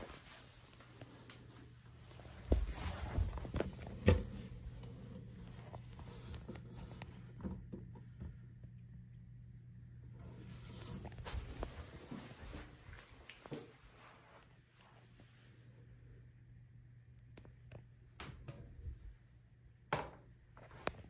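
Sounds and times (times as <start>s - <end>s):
low hum: 0.9s - 13.0s.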